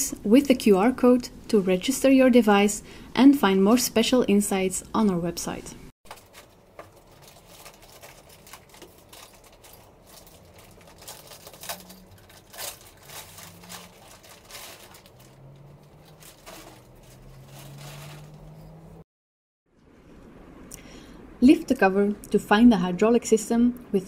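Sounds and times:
plastic bag crinkling: 0:06.1 - 0:19.0.

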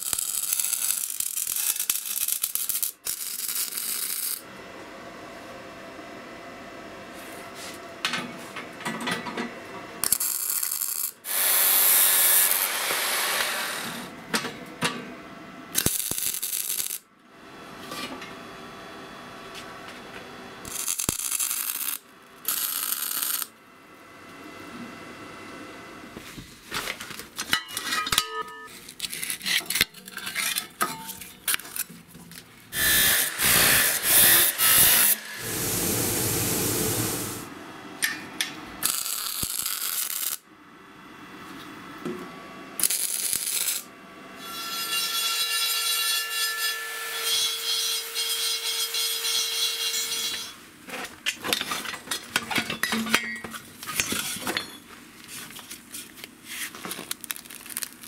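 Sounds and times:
noisy tool work: 0:00.0 - 0:04.5, 0:10.0 - 0:15.0, 0:15.7 - 0:17.1, 0:20.6 - 0:23.6, 0:26.9 - 0:40.4, 0:42.8 - 0:58.0
power tool motor running: 0:11.3 - 0:14.1, 0:32.8 - 0:37.5.

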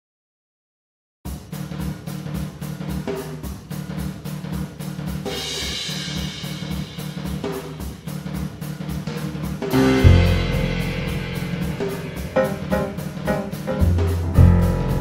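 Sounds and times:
drum kit beat: 0:01.3 - 0:15.0
cymbal wash: 0:09.7 - 0:14.1
bass notes: 0:09.7 - 0:15.0.

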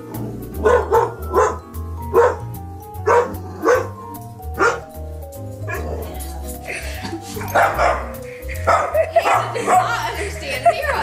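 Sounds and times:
background music with bass line: 0:00.0 - 0:11.0
large dog barking: 0:00.5 - 0:04.0, 0:04.6 - 0:04.9, 0:07.4 - 0:09.9.

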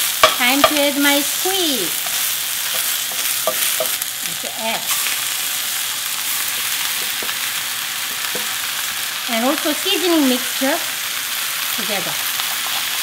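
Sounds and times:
vegetables sizzling in oil: 0:00.0 - 0:13.0
wooden spoon scraping a pan: 0:01.9 - 0:04.0, 0:04.8 - 0:08.6.

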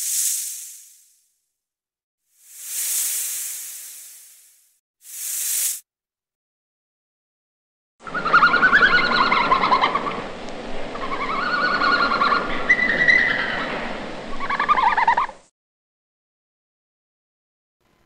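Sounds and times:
snake hissing: 0:00.0 - 0:01.2, 0:02.4 - 0:05.8.

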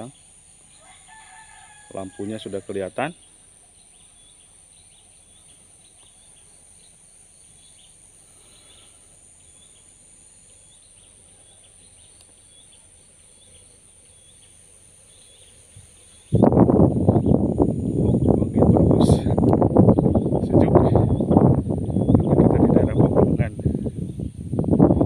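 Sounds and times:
high-pitched whine: 0:15.7 - 0:25.0.

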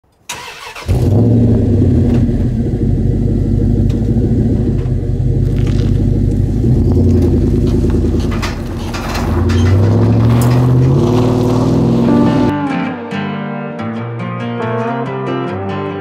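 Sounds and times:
vehicle engine running: 0:00.7 - 0:12.5.

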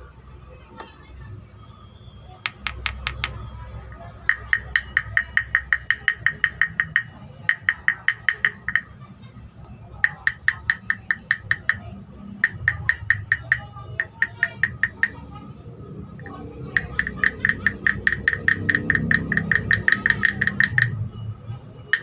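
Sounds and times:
stick scraping wooden guiro: 0:16.2 - 0:20.9.

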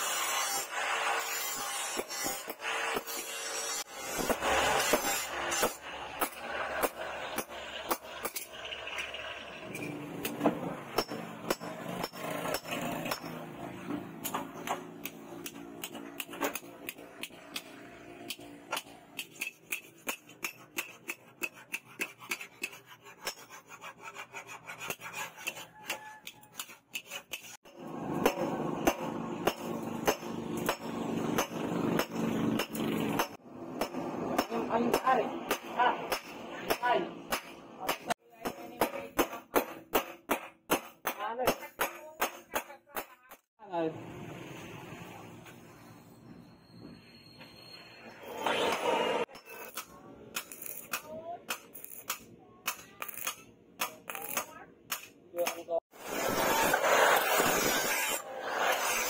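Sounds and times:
hammer striking metal on anvil: 0:09.7 - 0:13.4, 0:27.3 - 0:43.5.

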